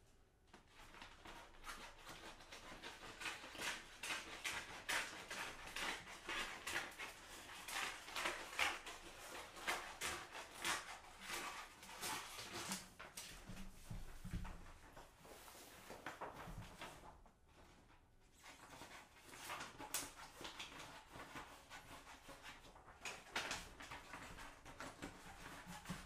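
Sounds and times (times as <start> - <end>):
plastic film crackling and rustling: 0.7 - 13.7.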